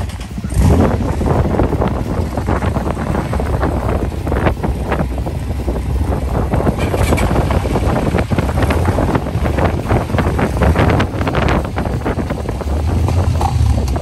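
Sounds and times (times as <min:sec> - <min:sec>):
off-road vehicle engines: 0:00.0 - 0:14.0
wind buffeting microphone: 0:00.0 - 0:14.0
quad bike rolling past: 0:06.7 - 0:14.0.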